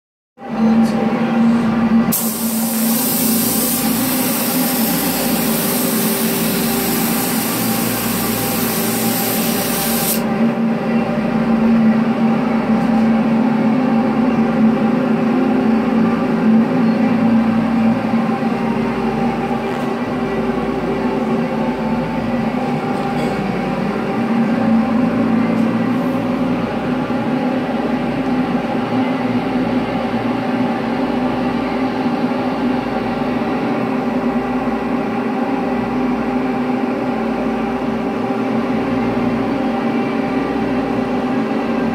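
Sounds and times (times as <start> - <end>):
fan motor hum: 0.5 - 41.9
spray gun hissing: 2.1 - 10.2.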